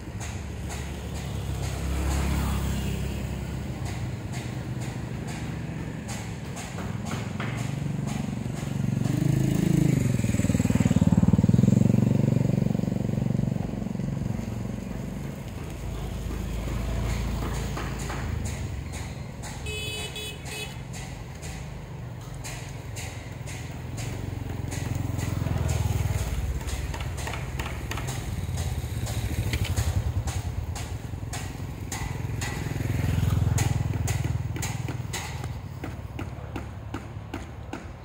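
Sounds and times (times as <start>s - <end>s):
motorbike engines rumbling past: 0.0s - 38.0s.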